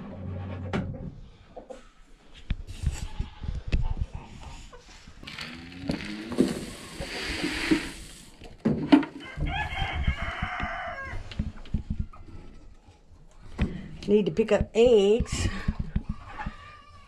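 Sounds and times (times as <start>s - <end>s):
chickens calling: 4.1s - 8.5s, 15.0s - 17.0s
rooster crowing: 9.2s - 11.2s.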